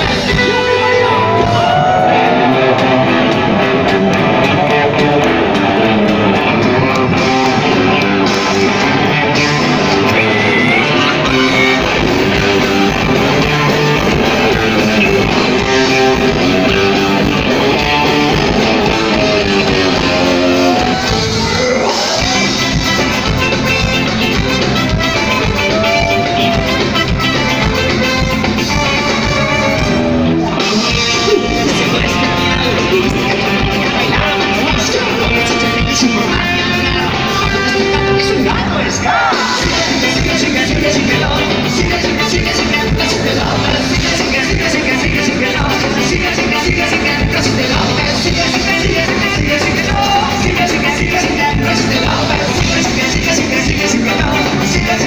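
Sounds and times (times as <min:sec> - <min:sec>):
electric guitars: 0:00.0 - 0:55.0
ska-punk band playing live: 0:00.0 - 0:55.0.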